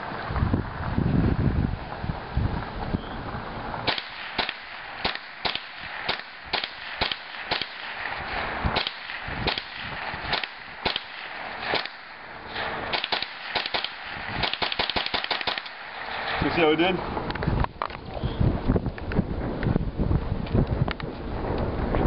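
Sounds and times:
rifle shots: 3.8s - 16.9s.

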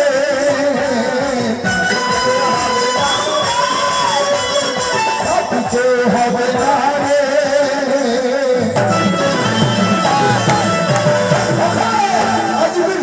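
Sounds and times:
harmonium: 0.0s - 13.0s
man singing into a microphone: 0.0s - 13.0s
hand drum: 8.8s - 13.0s.

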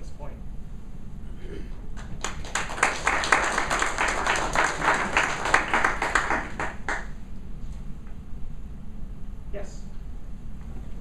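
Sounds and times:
audience applauding: 2.0s - 7.2s.

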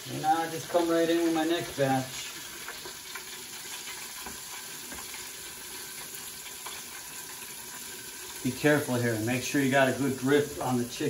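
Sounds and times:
chicken sizzling in hot oil: 0.0s - 11.0s
oil crackling: 0.0s - 11.0s.

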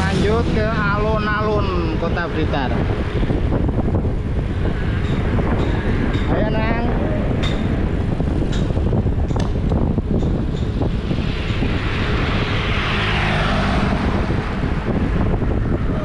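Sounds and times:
wind buffeting microphone: 0.0s - 16.0s
motor scooter passing: 10.0s - 16.0s.

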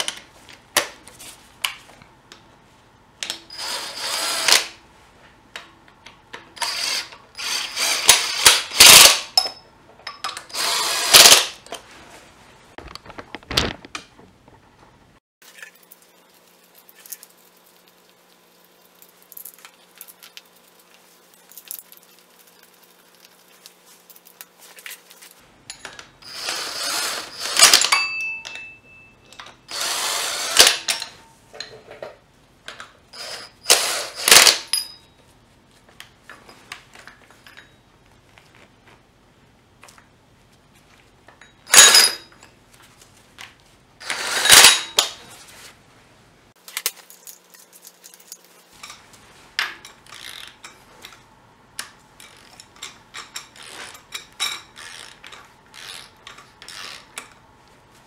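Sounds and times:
tools clinking and tapping: 8.8s - 10.5s, 25.6s - 26.3s, 27.4s - 29.7s, 30.8s - 33.0s, 34.3s - 35.3s, 36.3s - 38.0s, 41.3s - 42.6s, 46.7s - 51.2s, 51.8s - 57.4s.

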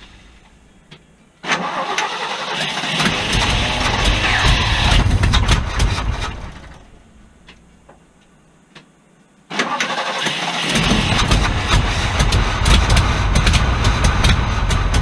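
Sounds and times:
engine starter cranking: 1.4s - 7.0s, 9.5s - 15.0s
deep engine rumble: 2.9s - 8.2s, 10.7s - 15.0s
faint clicks: 6.8s - 9.5s.

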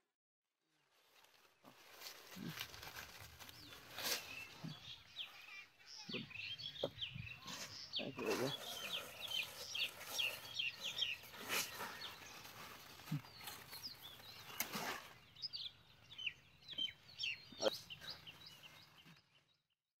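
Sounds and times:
leaves rustling: 0.8s - 5.6s, 7.4s - 15.4s
small birds chirping: 0.8s - 19.7s.

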